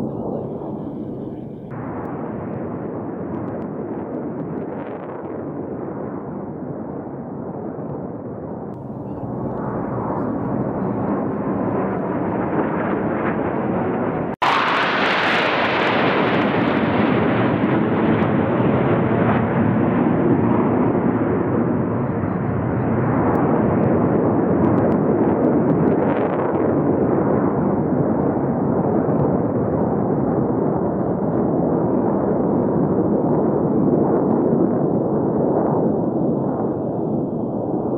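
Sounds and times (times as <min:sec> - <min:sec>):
jet aircraft flying past: 0:08.9 - 0:25.6.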